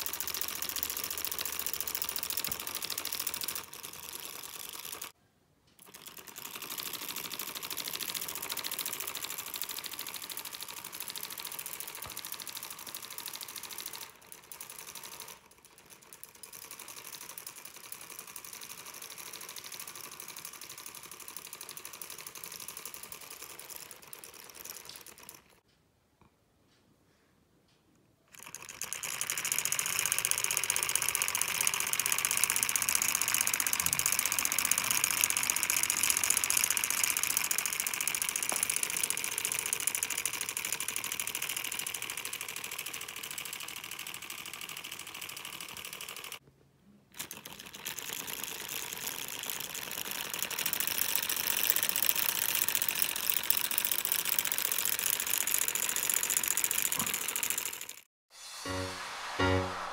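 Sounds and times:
solenoid engine clattering: 0.0s - 5.1s, 28.3s - 46.4s, 47.2s - 58.1s.

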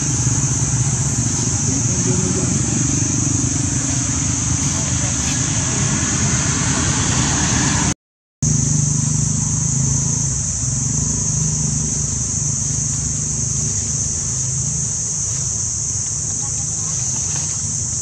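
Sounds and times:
high hiss: 0.0s - 18.0s
low engine-like rumble: 0.0s - 18.0s.

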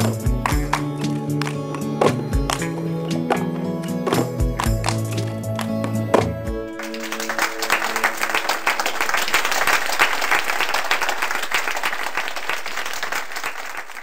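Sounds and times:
held notes of music: 0.0s - 13.6s
audience applause: 6.7s - 14.0s.

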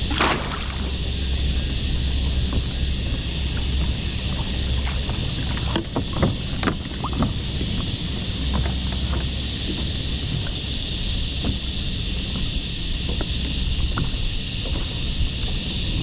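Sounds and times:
net splashing in water: 0.0s - 1.0s
wind on microphone: 0.0s - 16.0s.

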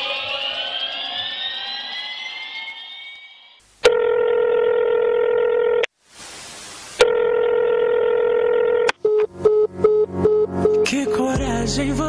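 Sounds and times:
rising electronic sweep: 0.0s - 3.6s
telephone-like electronic tone: 0.0s - 5.9s, 7.0s - 11.3s.

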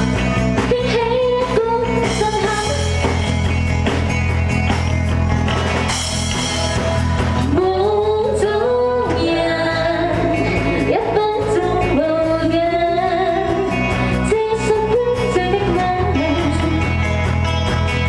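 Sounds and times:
live rock-pop band playing: 0.0s - 18.0s
person singing: 0.6s - 3.1s, 7.2s - 17.0s.

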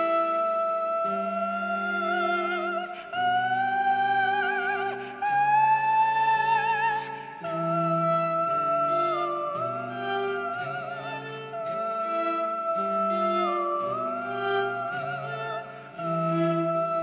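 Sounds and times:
high sustained melody with vibrato: 0.0s - 17.0s.

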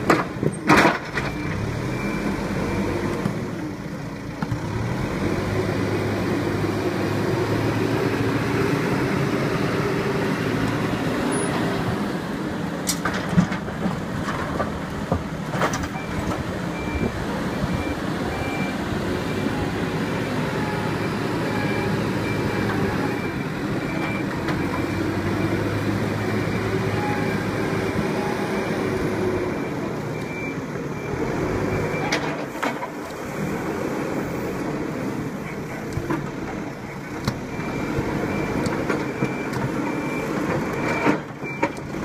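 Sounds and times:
diesel engine under load: 0.0s - 42.0s
reversing alarm beeping: 16.0s - 32.2s, 37.5s - 41.8s.

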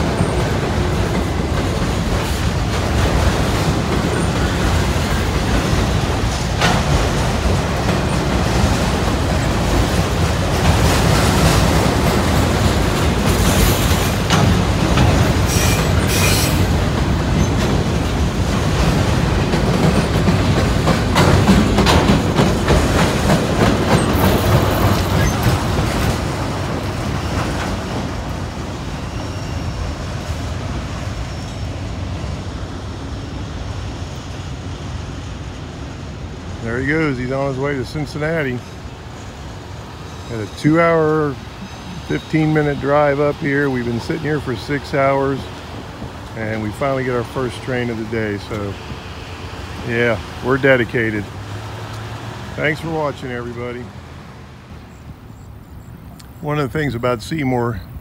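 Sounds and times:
freight train wheels rumbling on rail: 0.0s - 58.0s
train wheels squealing: 13.2s - 14.2s, 15.4s - 17.6s, 23.9s - 25.7s, 27.0s - 32.4s, 39.2s - 45.6s.

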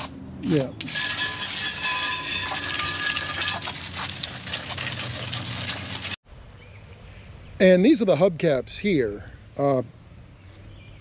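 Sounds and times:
water hose spraying metal rim: 0.0s - 6.2s.

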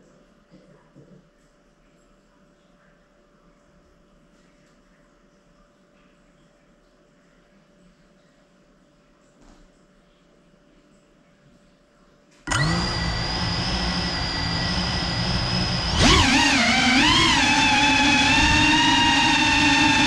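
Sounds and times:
drone propellers whining: 12.5s - 20.0s.

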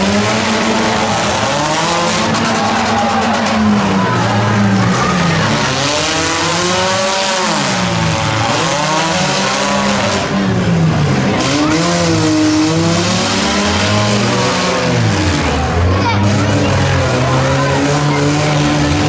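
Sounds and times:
car engines revving: 0.0s - 19.0s
tyres spinning and squealing in mud: 0.0s - 19.0s.

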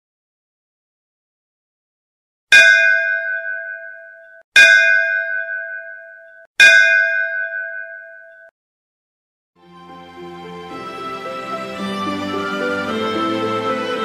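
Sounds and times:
bell ringing: 2.6s - 8.5s.

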